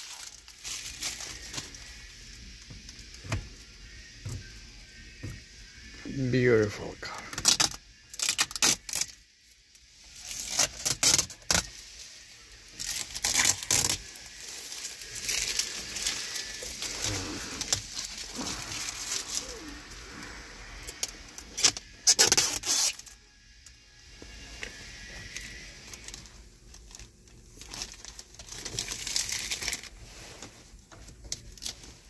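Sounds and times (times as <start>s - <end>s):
plastic film peeling and crinkling: 0.0s - 5.4s, 7.1s - 23.2s, 24.3s - 32.0s.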